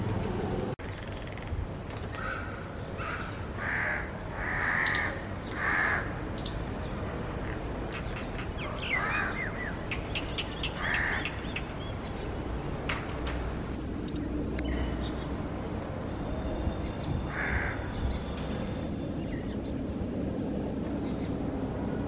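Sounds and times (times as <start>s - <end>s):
crows cawing: 2.1s - 6.2s, 8.9s - 9.5s, 10.8s - 11.4s, 17.3s - 17.9s.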